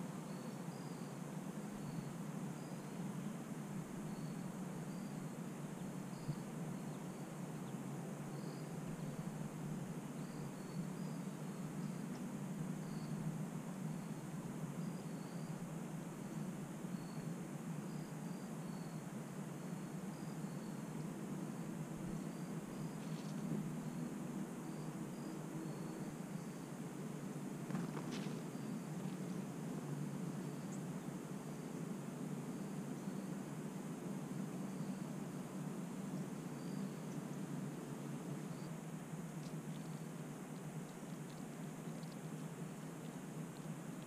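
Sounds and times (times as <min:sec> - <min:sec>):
crickets chirping: 0:00.0 - 0:44.0
steady outdoor hiss: 0:00.0 - 0:44.0
faint clicks: 0:39.4 - 0:44.0.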